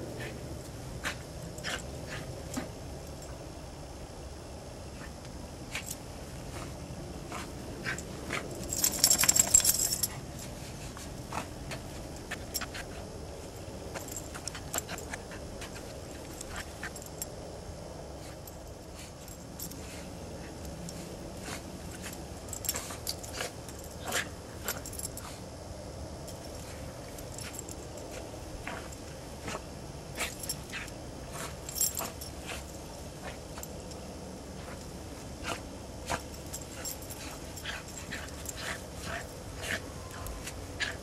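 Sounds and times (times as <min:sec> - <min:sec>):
metal jingling: 0:07.8 - 0:10.5, 0:30.1 - 0:41.0.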